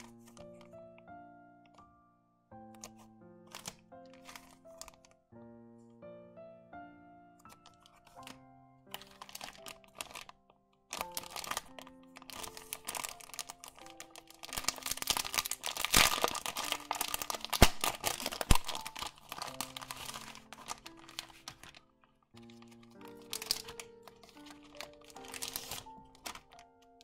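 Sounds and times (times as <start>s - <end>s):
plastic packet crinkling: 0.0s - 0.8s, 2.8s - 5.2s, 7.5s - 27.0s
background music: 0.0s - 27.0s
plastic snapping: 10.9s - 27.0s.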